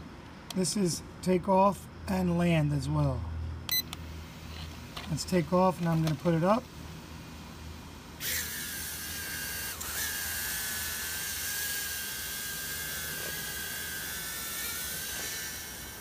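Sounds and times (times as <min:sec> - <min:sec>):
drone motors high-pitched whine: 0:08.0 - 0:16.0.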